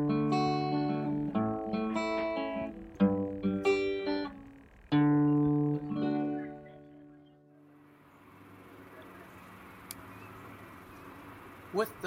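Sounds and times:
plucked guitar music: 0.0s - 9.2s.

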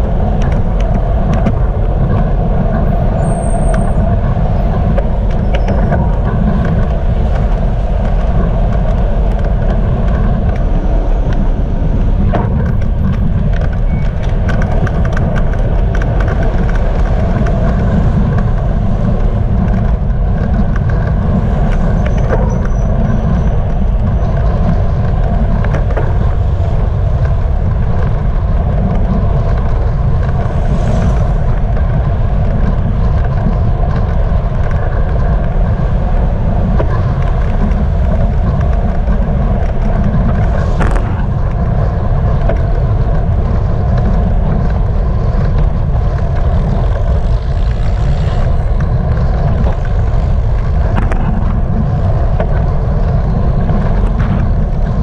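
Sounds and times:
car traffic passing: 0.0s - 55.0s
road rumble: 0.0s - 55.0s
wind buffeting: 0.0s - 55.0s.

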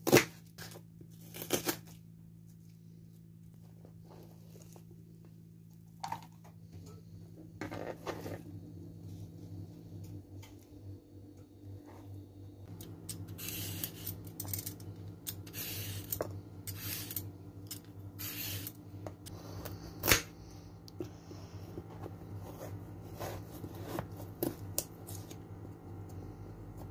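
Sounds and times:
low steady hum: 0.0s - 26.9s
peeler scraping carrot: 13.0s - 18.8s.

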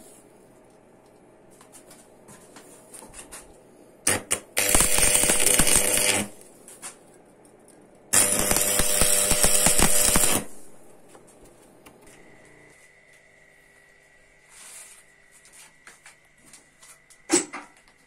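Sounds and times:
electrical hum: 0.0s - 18.0s
arc welding crackle: 4.1s - 6.9s, 8.1s - 11.1s.

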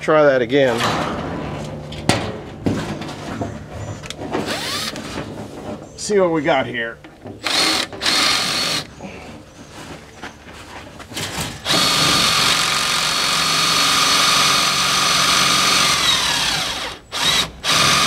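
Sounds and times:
cordless drill whining: 4.4s - 5.0s, 7.4s - 8.9s, 11.6s - 18.0s.

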